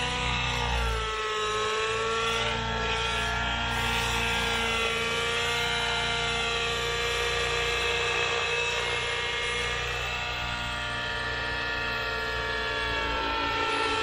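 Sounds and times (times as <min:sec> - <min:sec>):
model helicopter engine whine: 0:00.0 - 0:14.0.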